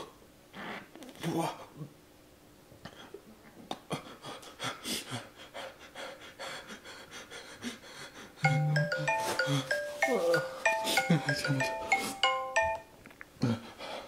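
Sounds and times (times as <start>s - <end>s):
man panting: 3.9s - 8.5s, 13.4s - 14.0s
music with chime-like notes: 8.4s - 13.0s.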